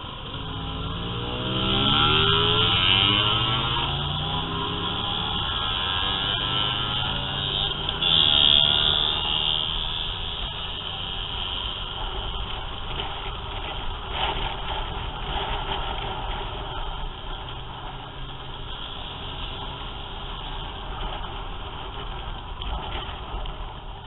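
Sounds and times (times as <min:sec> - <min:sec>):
motor scooter engines running: 0:00.0 - 0:24.0
wind noise on camera: 0:09.5 - 0:24.0.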